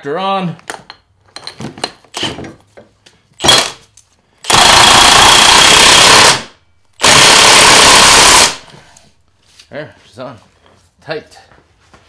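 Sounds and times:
impact wrench hammering: 0:03.4 - 0:03.8, 0:04.4 - 0:08.6.

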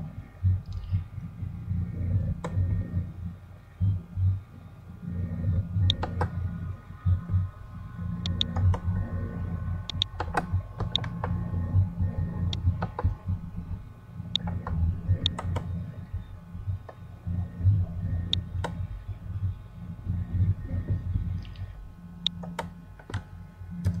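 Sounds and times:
steady low hum: 0:00.0 - 0:24.0
computer mouse clicks: 0:00.6 - 0:01.0, 0:02.4 - 0:02.8, 0:05.8 - 0:06.4, 0:08.2 - 0:09.0, 0:09.9 - 0:11.4, 0:14.3 - 0:15.8, 0:18.2 - 0:18.8, 0:21.4 - 0:24.0.

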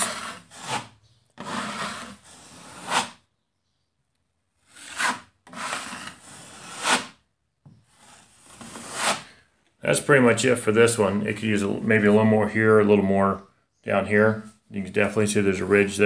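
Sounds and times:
drywall knife scraping compound: 0:00.0 - 0:03.3, 0:04.5 - 0:09.5.

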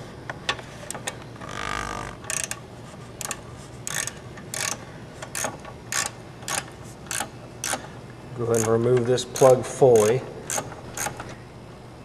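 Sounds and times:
socket ratchet clicking: 0:02.2 - 0:02.6, 0:03.2 - 0:07.9, 0:08.5 - 0:11.3.

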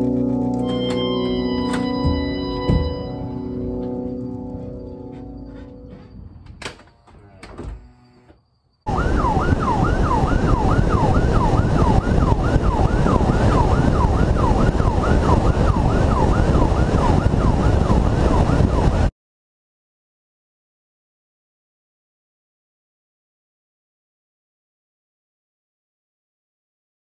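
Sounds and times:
police siren yelping: 0:00.0 - 0:06.1, 0:08.9 - 0:19.1.

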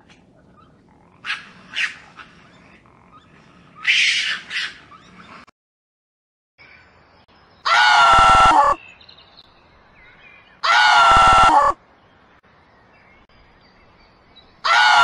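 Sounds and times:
giant panda squealing bleat: 0:10.6 - 0:11.8.

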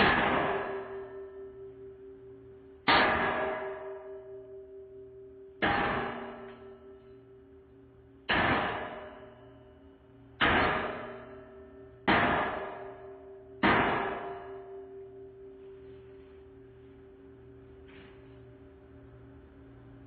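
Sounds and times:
hammer striking steel: 0:00.0 - 0:01.8, 0:02.8 - 0:04.9, 0:05.5 - 0:07.3, 0:08.2 - 0:15.9.

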